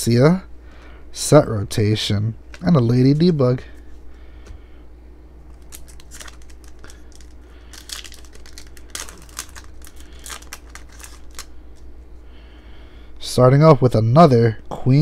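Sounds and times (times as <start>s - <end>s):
steady low hum: 0.0s - 15.0s
foil wrapper crinkling and tearing: 5.5s - 11.6s.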